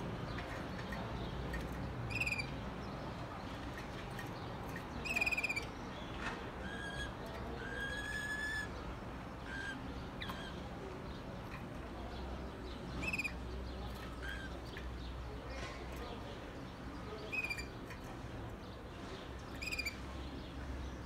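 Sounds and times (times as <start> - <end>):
canary singing trills and whistles: 0.3 - 3.2, 4.2 - 11.3, 12.2 - 15.2, 16.7 - 18.8, 19.4 - 21.0.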